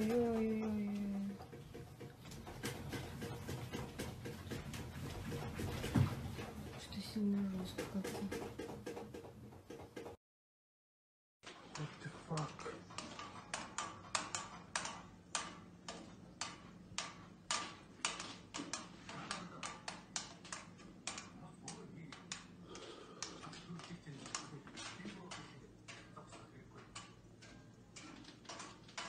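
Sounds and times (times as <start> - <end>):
furnishings rattling and clinking: 0.0 - 10.2, 11.4 - 29.0.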